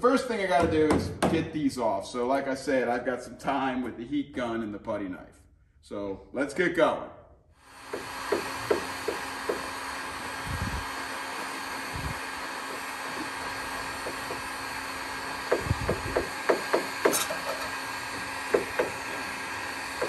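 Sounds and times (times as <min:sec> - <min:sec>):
heat gun blowing: 0:07.6 - 0:20.0.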